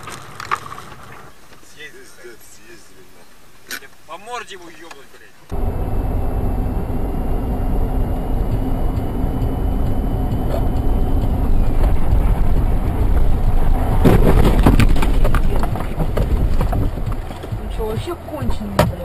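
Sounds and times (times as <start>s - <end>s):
vehicle road and engine rumble: 5.4s - 19.0s
sharp knocks and clatter: 8.5s - 19.0s.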